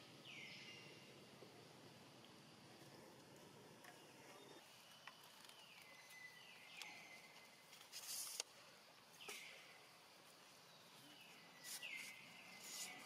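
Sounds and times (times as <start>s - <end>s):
short hiss of noise: 7.8s - 8.6s.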